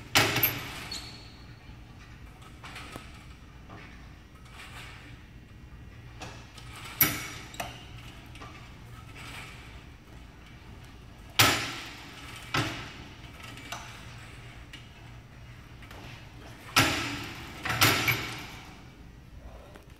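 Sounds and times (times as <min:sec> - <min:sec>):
metal weight bench clanks: 0:15.9 - 0:18.8.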